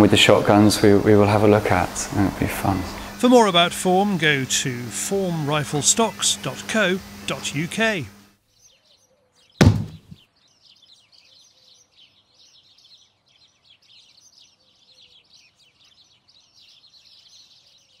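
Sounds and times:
faint birdsong chirps: 5.4 - 18.0
heavy thud: 9.6 - 10.2.

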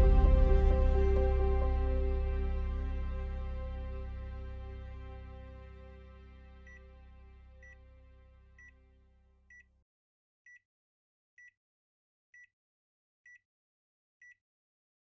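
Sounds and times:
faint background music: 0.0 - 9.0.

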